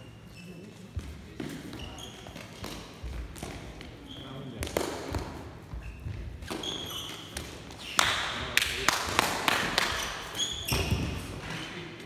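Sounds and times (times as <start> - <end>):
sneaker squeaks: 0.0 - 8.1, 9.8 - 11.8
sharp taps on hall floor: 4.6 - 5.4.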